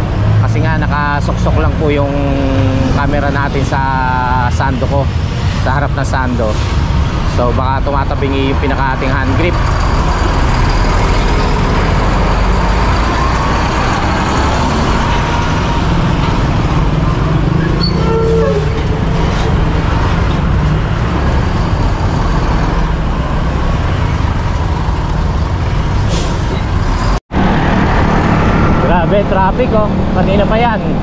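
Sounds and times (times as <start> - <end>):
surrounding vehicles: 0.0 - 31.0
wind and road noise: 0.0 - 31.0
brief high-pitched tone: 17.8 - 19.5.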